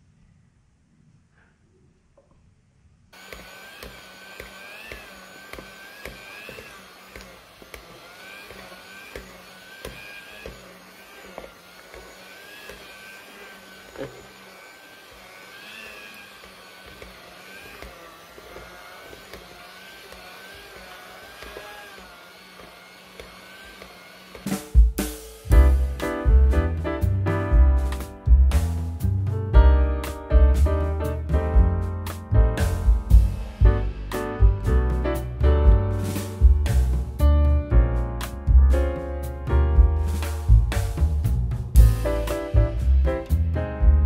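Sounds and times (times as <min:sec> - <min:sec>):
hand mixer motor whine: 0:03.2 - 0:24.8.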